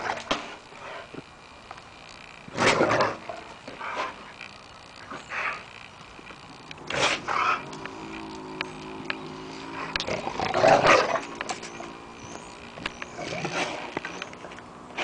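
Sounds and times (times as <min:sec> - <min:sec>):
scattered clicks: 0:01.1 - 0:07.0, 0:07.6 - 0:14.7
dog growling: 0:09.6 - 0:11.9.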